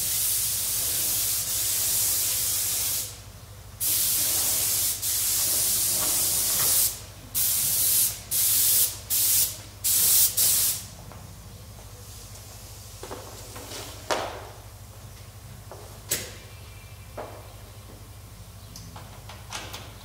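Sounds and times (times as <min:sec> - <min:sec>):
paint spray gun hissing: 0:00.0 - 0:03.2, 0:03.8 - 0:10.8.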